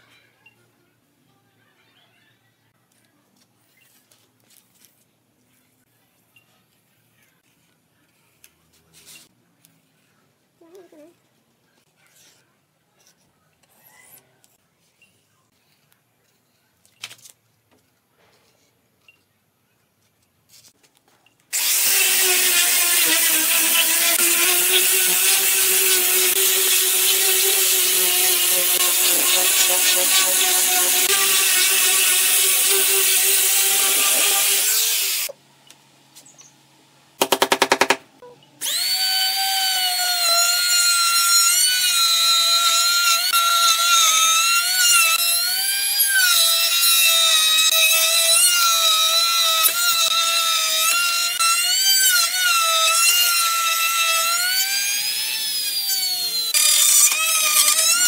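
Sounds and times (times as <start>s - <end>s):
angle grinder sanding wood: 21.6s - 35.3s
trim router whining: 21.6s - 35.3s, 38.6s - 58.0s.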